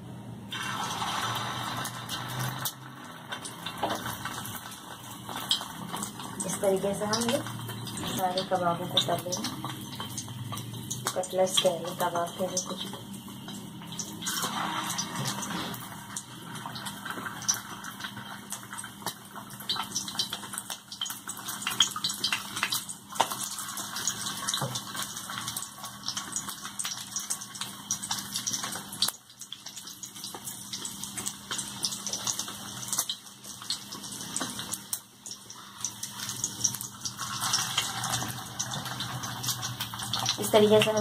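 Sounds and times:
fish frying in hot oil: 0.0 - 41.0.

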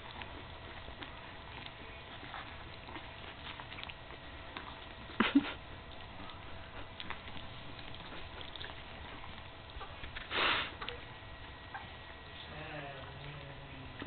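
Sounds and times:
puppies suckling and rustling: 0.0 - 14.0
dog sniff: 10.2 - 10.8.

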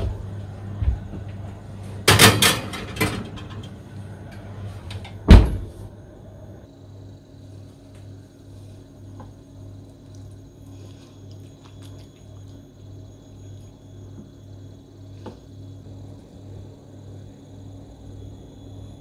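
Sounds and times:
low pulsing hum: 0.0 - 2.3.

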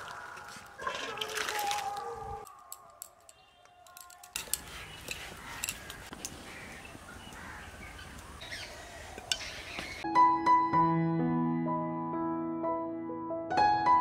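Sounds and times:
birds calling: 2.0 - 10.1.

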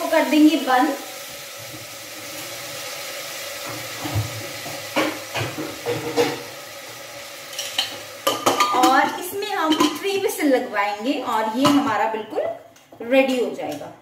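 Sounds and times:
pumpkin sizzling in a pot: 0.0 - 13.9.

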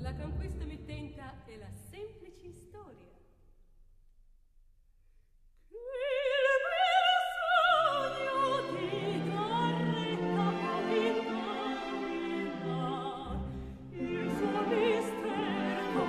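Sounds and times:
orchestral accompaniment: 7.9 - 16.0.

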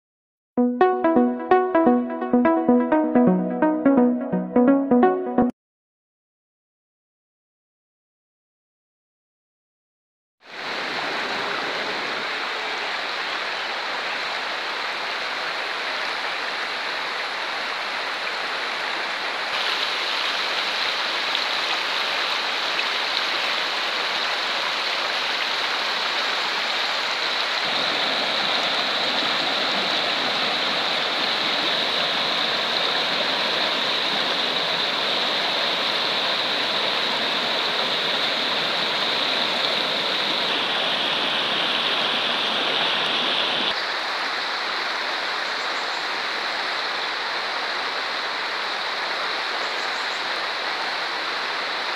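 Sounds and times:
river rushing over stones: 10.5 - 45.5.

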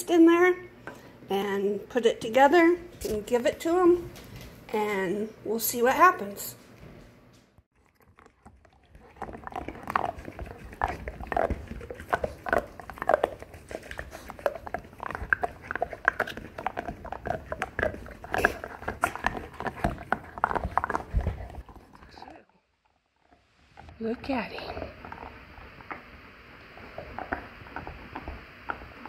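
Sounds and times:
dog chewing a chew toy: 7.7 - 22.4, 23.2 - 29.0.

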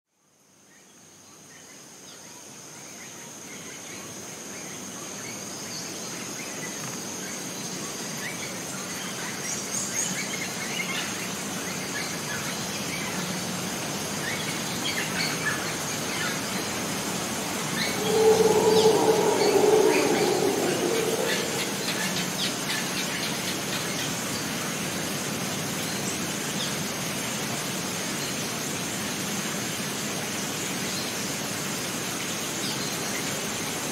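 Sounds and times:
high insect drone: 16.4 - 22.8
lower-pitched animal call: 17.2 - 22.8.

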